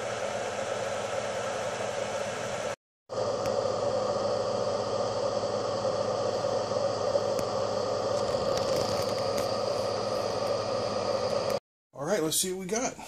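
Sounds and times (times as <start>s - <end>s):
cooling fan running: 0.0s - 11.6s.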